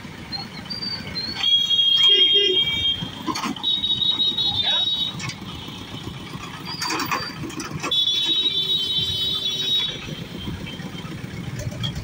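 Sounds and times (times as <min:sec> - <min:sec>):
motorcycle engine running: 0:00.0 - 0:12.0
truck engine running: 0:00.0 - 0:12.0
high piercing electronic alarm tone: 0:01.2 - 0:05.1.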